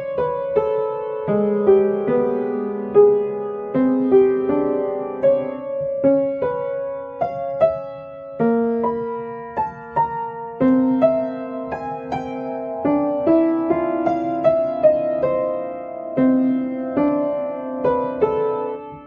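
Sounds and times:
slow piano music: 0:00.0 - 0:19.0.

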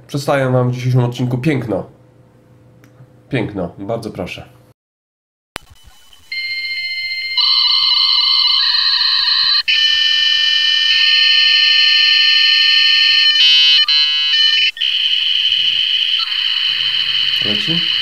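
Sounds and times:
dial-up modem screech: 0:05.7 - 0:18.0.

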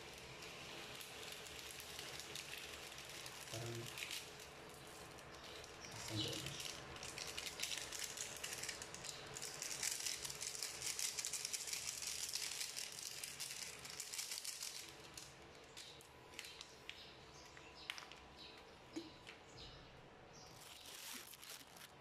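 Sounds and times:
seasoning sachet shaken: 0:00.0 - 0:16.6, 0:20.5 - 0:22.0
chicken crackling in a pan: 0:00.0 - 0:18.3, 0:20.5 - 0:22.0
plastic packet tearing: 0:01.0 - 0:16.7, 0:20.5 - 0:22.0.

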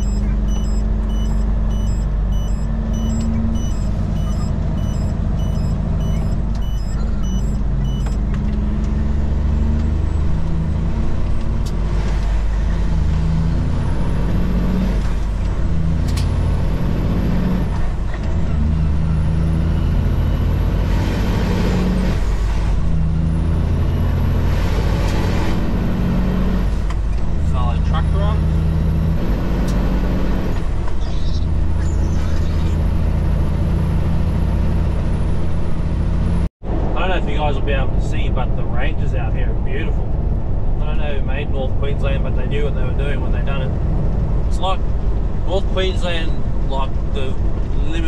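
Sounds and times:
turn signal ticking: 0:00.0 - 0:09.0
truck diesel engine accelerating: 0:00.0 - 0:48.0.

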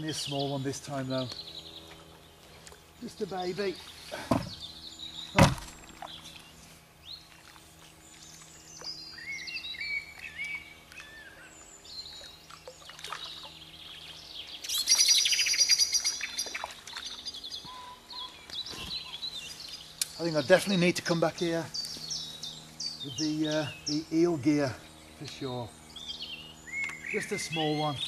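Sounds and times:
songbirds chirping: 0:00.0 - 0:28.0
sharp knock: 0:05.4 - 0:05.7
bird trill: 0:08.2 - 0:20.6, 0:21.7 - 0:24.3, 0:24.9 - 0:28.0.

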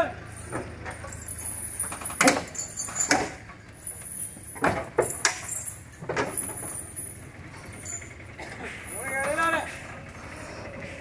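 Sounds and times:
sharp knocks and clanks: 0:00.4 - 0:03.6, 0:04.5 - 0:10.0.

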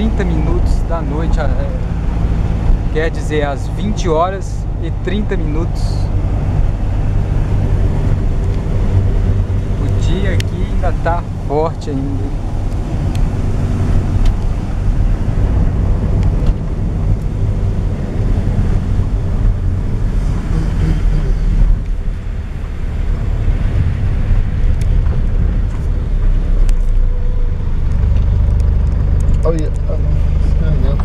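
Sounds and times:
road and engine rumble: 0:00.0 - 0:31.0
wind buffeting microphone: 0:04.6 - 0:28.5.

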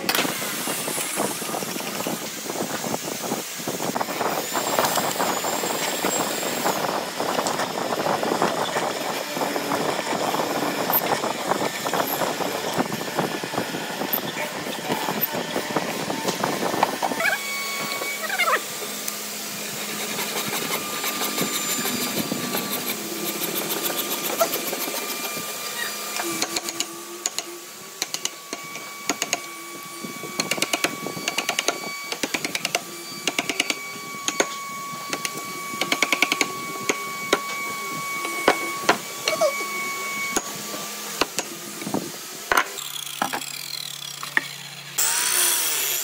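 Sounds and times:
chisel rasping wood: 0:19.7 - 0:27.4.

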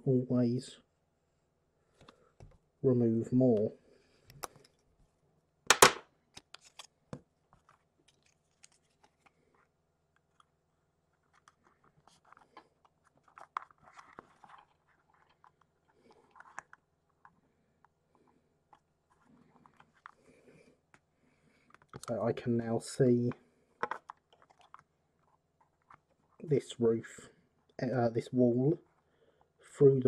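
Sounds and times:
plastic clicks and rustling: 0:11.2 - 0:17.4, 0:23.8 - 0:26.2.

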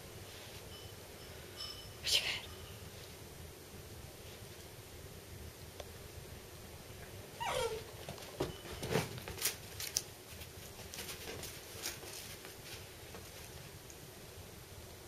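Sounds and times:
puppy whimper: 0:07.4 - 0:07.9.

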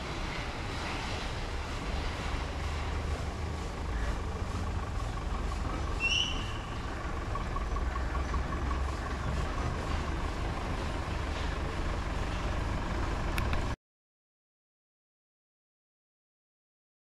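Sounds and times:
road traffic hum: 0:00.0 - 0:13.8
short high squeal: 0:05.9 - 0:06.8.

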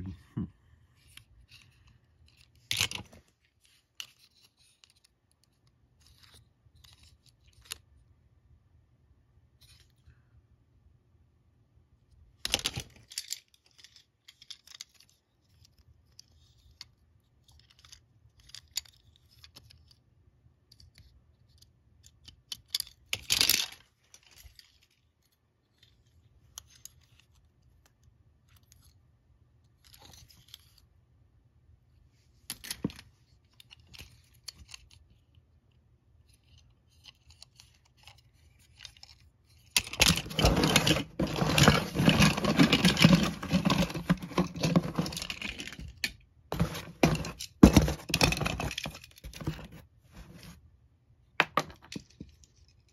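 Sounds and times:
toy cars clinking: 0:37.2 - 0:49.3
cardboard box scraping and rustling: 0:40.2 - 0:45.3, 0:46.5 - 0:48.8.

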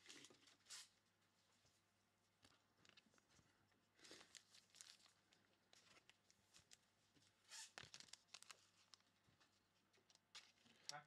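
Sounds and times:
cards and wrappers crinkling: 0:00.0 - 0:00.9, 0:04.0 - 0:11.0
wrapper crackle: 0:04.0 - 0:06.8, 0:07.5 - 0:09.1.

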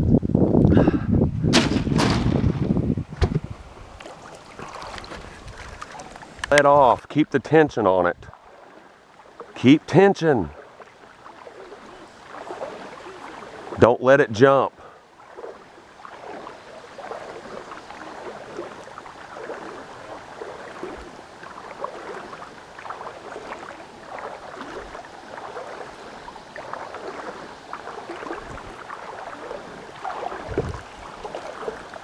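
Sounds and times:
low thumps: 0:01.3 - 0:03.6
stream water rippling: 0:01.6 - 0:32.0.

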